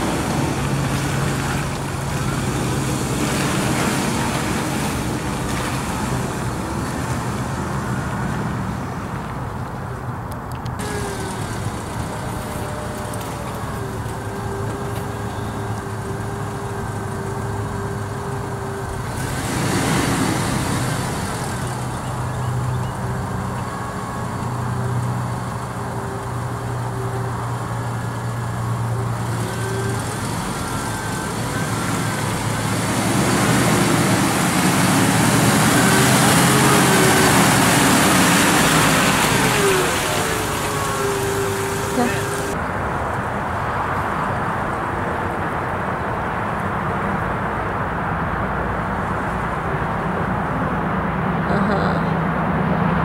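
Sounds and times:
tyres splashing through muddy water: 0.0s - 9.8s, 10.8s - 43.1s
car engine running: 0.0s - 42.6s
broad rushing noise: 0.0s - 53.0s.

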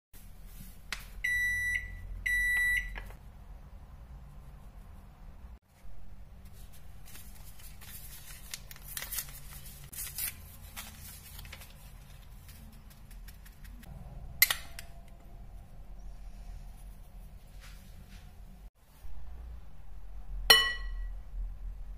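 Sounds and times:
ceramic bowl clinking on glass bowl: 20.5s - 21.1s.

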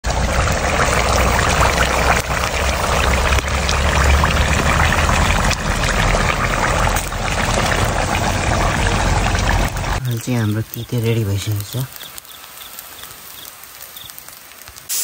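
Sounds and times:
low rumble: 0.0s - 10.0s
running water rushing: 0.0s - 15.0s.

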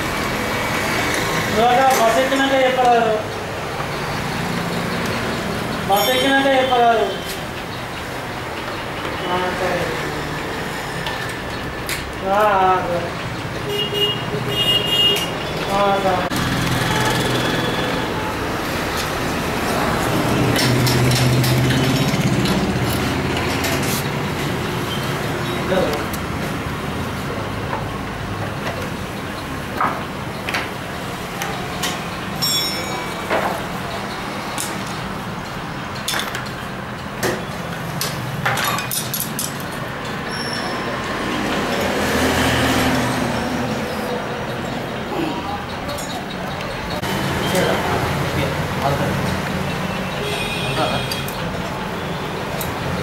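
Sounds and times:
metal tools clinking: 31.8s - 33.7s, 38.0s - 40.7s.

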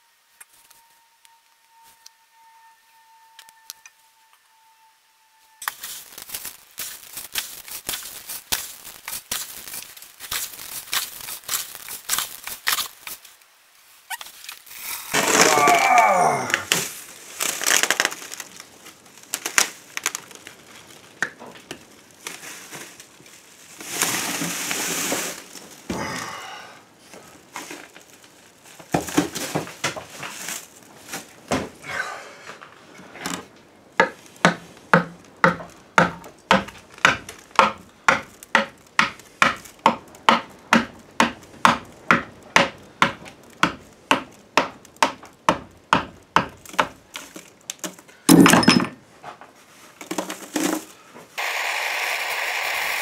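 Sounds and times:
gritty mix crunching and scraping: 5.6s - 13.5s, 14.1s - 26.2s.

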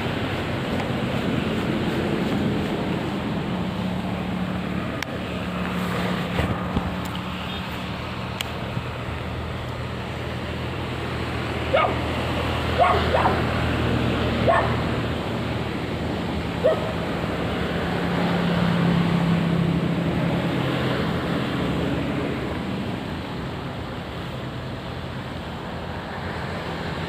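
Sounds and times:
dog barking: 11.7s - 12.0s, 12.8s - 13.5s, 14.4s - 14.8s, 16.6s - 17.0s.

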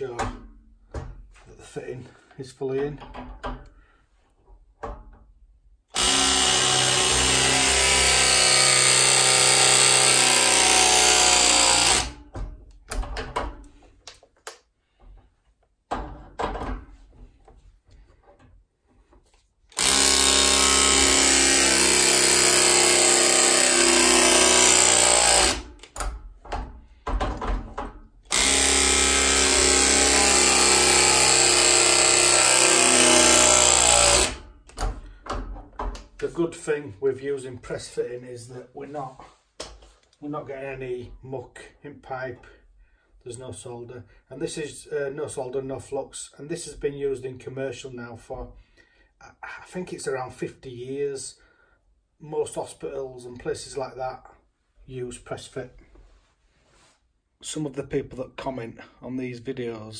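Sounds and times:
pipe press tool motor drone: 6.0s - 12.2s, 19.8s - 25.7s, 28.3s - 34.4s.

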